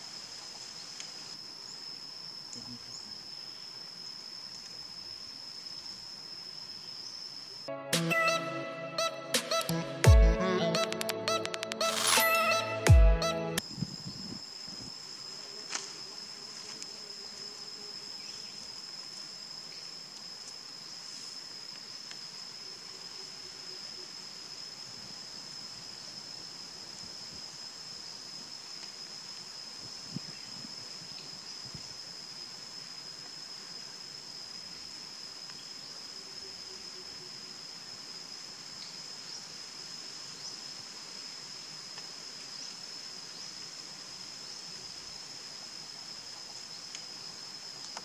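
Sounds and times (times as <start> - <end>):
high-pitched insect drone: 0.0 - 39.4
sharp clicks: 10.8 - 12.2.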